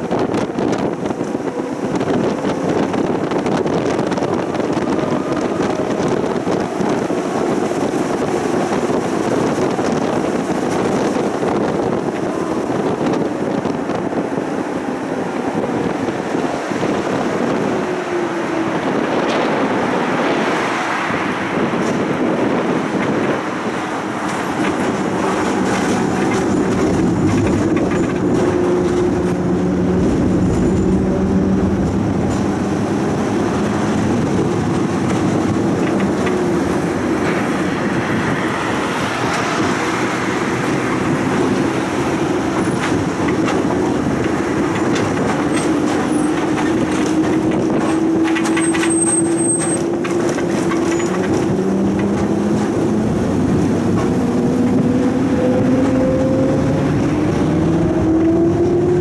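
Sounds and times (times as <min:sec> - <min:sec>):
tram motor hum: 0:00.0 - 0:59.0
tram wheels rumbling on rails: 0:00.0 - 0:59.0
wheels clicking over rail joints: 0:00.0 - 0:59.0.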